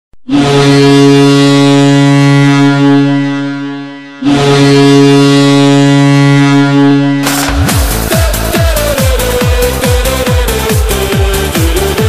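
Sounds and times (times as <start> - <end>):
arena goal horn blasts: 0.2 - 8.6.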